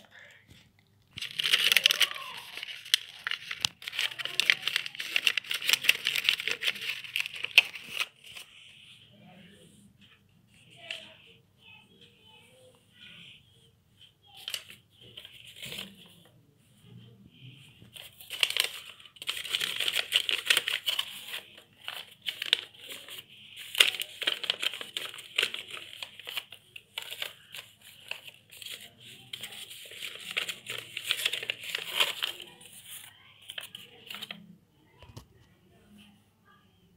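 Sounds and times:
paper rustling and crinkling: 0.0 - 8.6, 14.2 - 16.2, 17.8 - 34.4.

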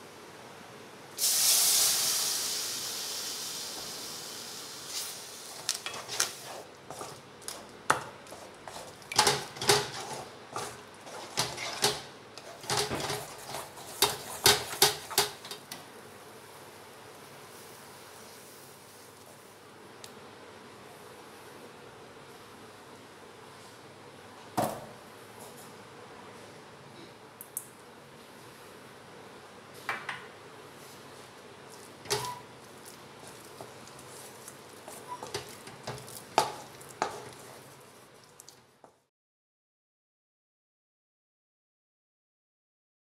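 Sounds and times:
milk hissing in hot pan: 1.2 - 5.7
spatula scraping and knocking pan: 5.5 - 15.8, 33.2 - 37.8.

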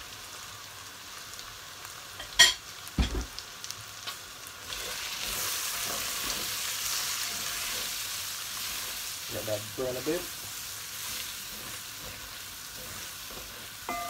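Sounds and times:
vegetables sizzling in hot oil: 0.0 - 14.0
knocks on a pot: 3.0 - 3.3.

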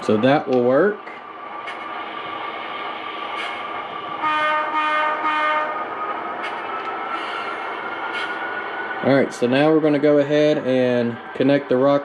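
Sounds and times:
air horn blasts: 4.2 - 5.8.

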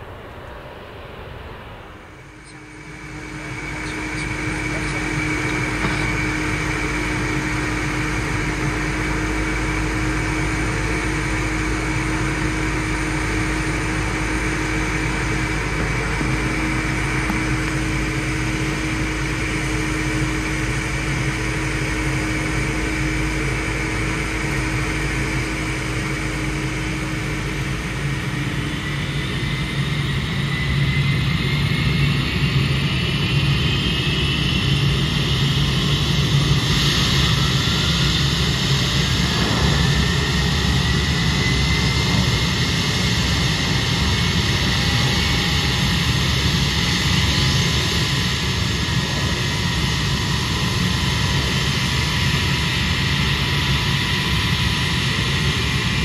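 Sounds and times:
low engine rumble: 0.0 - 29.8, 36.2 - 50.7
engine whine rising in pitch: 0.0 - 56.0
turbine whine: 0.0 - 56.0.

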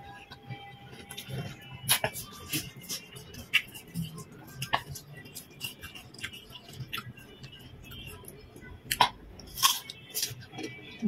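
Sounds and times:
wet chewing clicks: 1.9 - 7.2.

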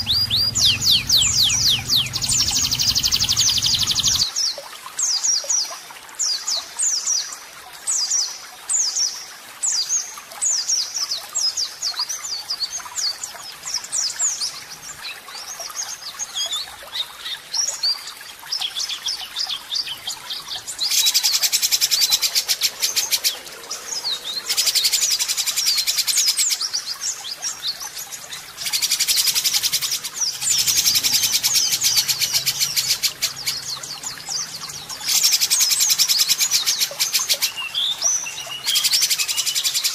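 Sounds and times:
bird rough rattling bursts: 0.0 - 4.2
songbird whistled song: 0.0 - 4.3, 27.3 - 39.9.

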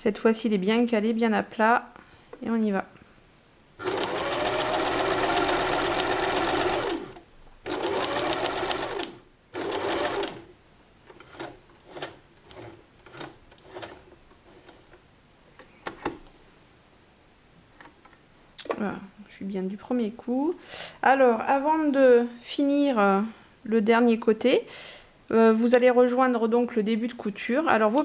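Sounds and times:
electric sewing machine stitching: 3.8 - 10.5.

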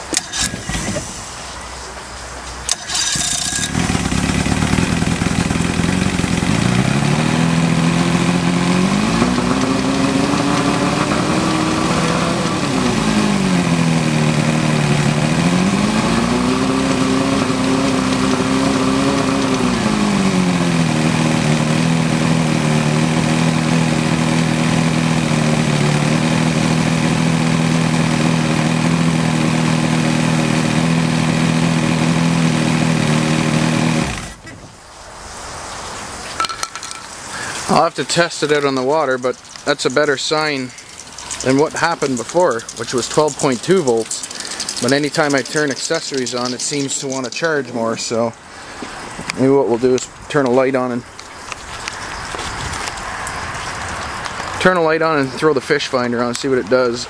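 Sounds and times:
outboard motor revving and idling: 0.0 - 1.2, 2.7 - 34.4, 37.4 - 49.6.

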